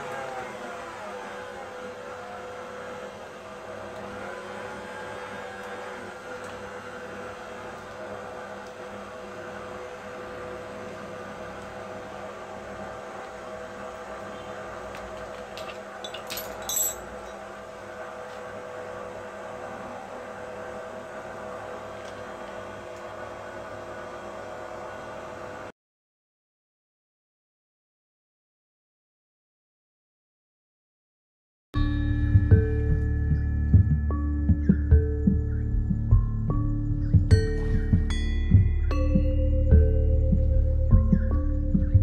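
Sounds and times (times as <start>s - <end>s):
stand mixer motor whining: 0.0s - 16.0s.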